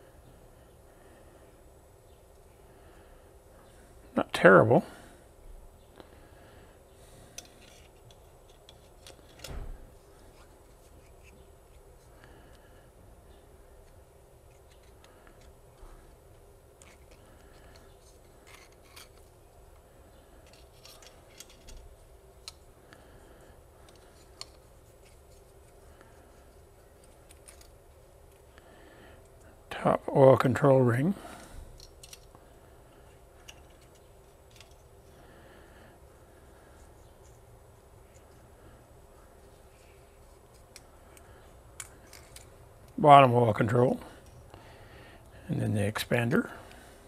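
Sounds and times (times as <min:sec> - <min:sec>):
small metallic clicks and scrapes: 0:07.3 - 0:09.6, 0:13.8 - 0:15.9, 0:16.8 - 0:22.7, 0:23.8 - 0:28.5, 0:31.8 - 0:32.4, 0:33.0 - 0:35.1, 0:39.7 - 0:43.0.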